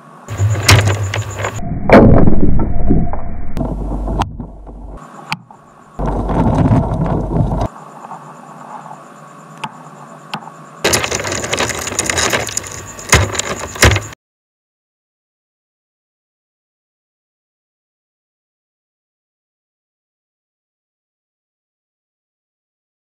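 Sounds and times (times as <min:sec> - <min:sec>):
sharp knocks: 0:00.3 - 0:02.2, 0:10.9 - 0:14.2
crackling crunching noise: 0:00.3 - 0:02.4, 0:03.6 - 0:05.0, 0:05.9 - 0:07.7, 0:10.8 - 0:14.2.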